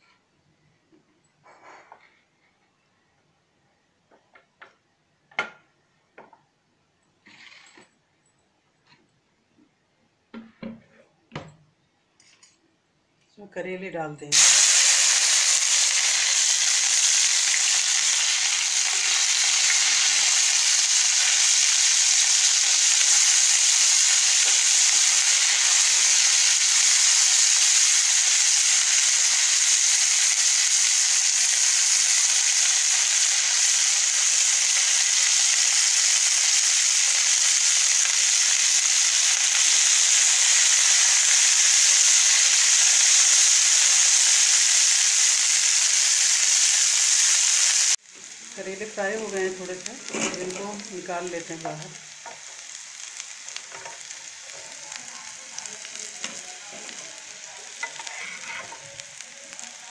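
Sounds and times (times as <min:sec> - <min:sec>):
food sizzling in hot oil: 0:14.3 - 0:59.9.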